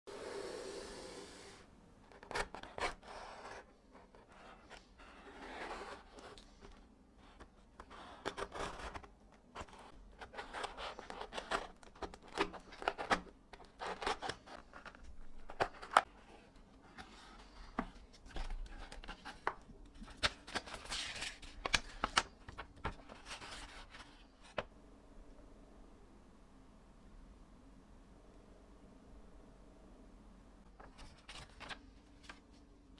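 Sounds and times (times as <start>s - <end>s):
cardboard and paper rustling: 2.2s - 24.6s, 30.8s - 32.7s.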